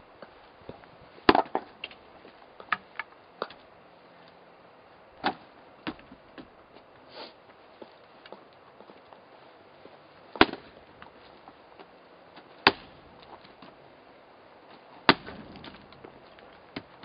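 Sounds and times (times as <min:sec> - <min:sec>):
axe splitting firewood: 0:01.3 - 0:02.0, 0:05.2 - 0:06.0, 0:10.3 - 0:11.1, 0:12.4 - 0:13.8, 0:14.8 - 0:17.0.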